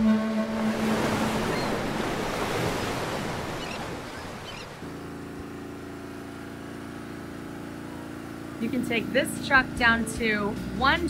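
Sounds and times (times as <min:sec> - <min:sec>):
ocean surf rushing: 0:00.0 - 0:04.9.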